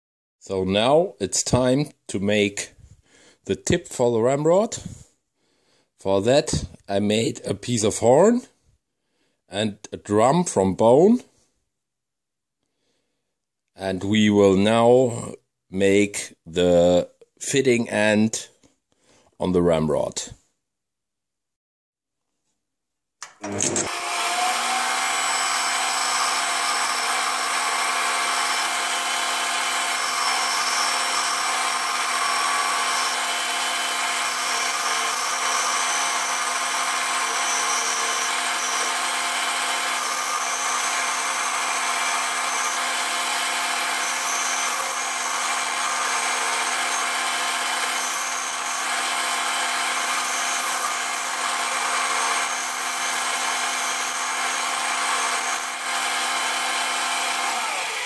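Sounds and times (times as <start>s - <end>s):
lathe motor whine: 23.4s - 58.0s.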